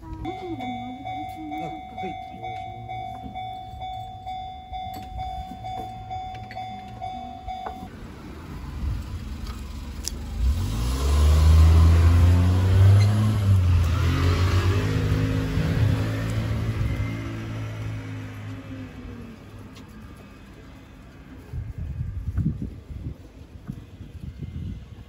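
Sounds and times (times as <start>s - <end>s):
vehicle engine passing close: 7.0s - 23.2s.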